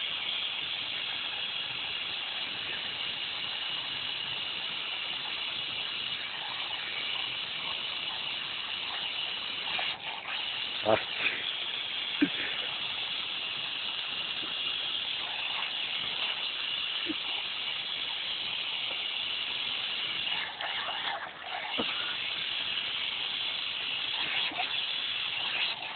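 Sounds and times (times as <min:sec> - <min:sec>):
water spraying from a tap: 0:00.0 - 0:25.9
dog biting and drinking water: 0:06.2 - 0:13.3, 0:14.0 - 0:25.9.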